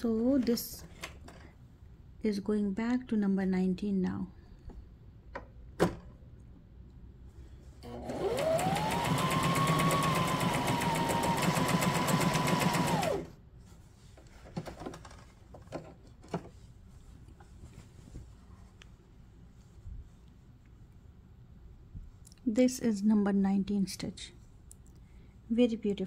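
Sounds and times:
sewing machine stitching: 7.8 - 13.4.

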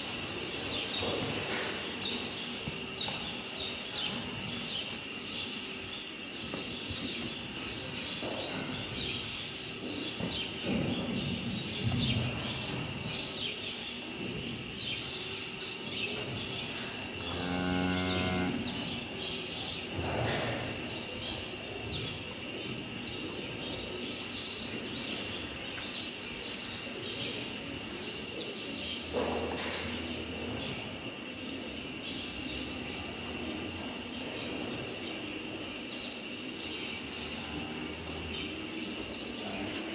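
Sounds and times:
cow mooing: 17.2 - 18.8.

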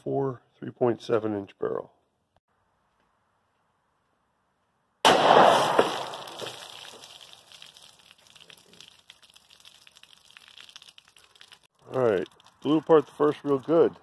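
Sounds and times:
pistol shot: 5.0 - 6.6
water splashing down: 5.5 - 12.8.

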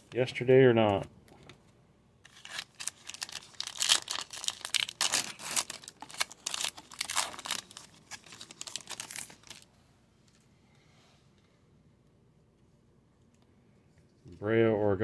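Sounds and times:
foil wrapper tearing and crinkling: 2.3 - 9.7.

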